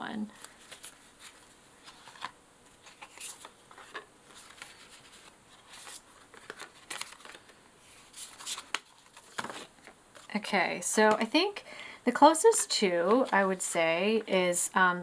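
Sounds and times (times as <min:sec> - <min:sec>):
paper card rustles: 0:00.3 - 0:10.4.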